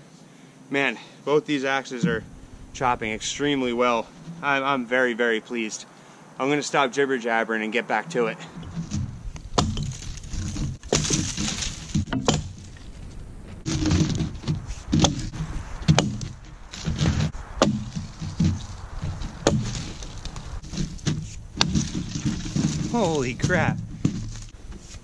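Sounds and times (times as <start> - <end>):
wood cracking: 8.5 - 25.0
axe chopping tree: 8.6 - 12.6, 13.7 - 25.0.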